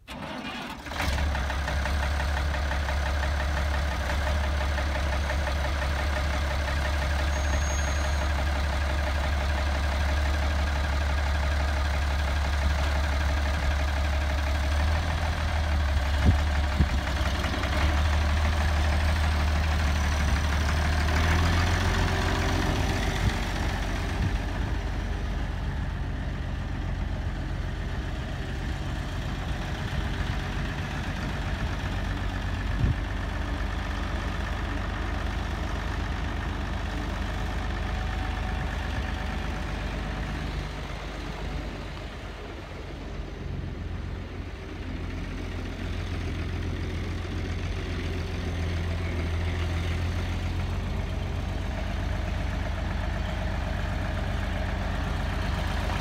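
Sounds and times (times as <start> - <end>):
tractor engine idling: 0.0 - 56.0.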